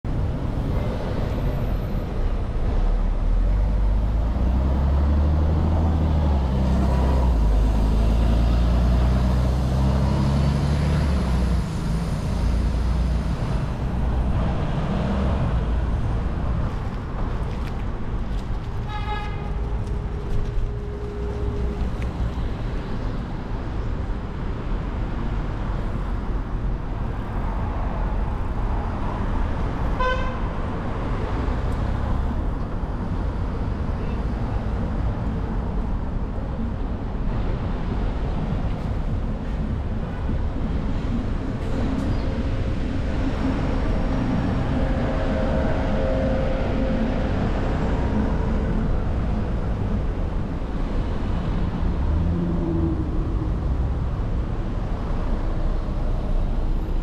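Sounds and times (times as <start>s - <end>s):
city traffic noise: 0.0s - 57.0s
large vehicle engine rumbling: 0.0s - 57.0s
car horn toot: 30.0s - 30.4s.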